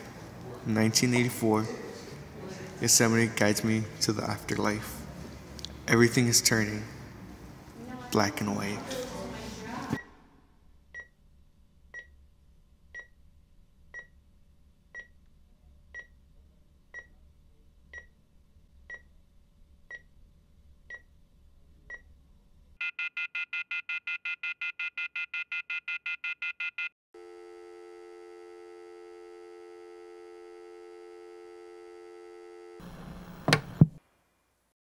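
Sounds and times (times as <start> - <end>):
fast pulsing alarm: 22.8 - 32.8
steady flatline tone: 27.2 - 33.5.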